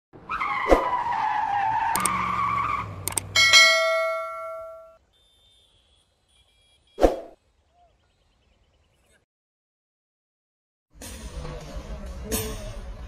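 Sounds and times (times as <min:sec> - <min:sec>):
sharp mouse clicks: 0:01.9 - 0:02.2, 0:03.1 - 0:03.3
bell chime: 0:03.4 - 0:05.0.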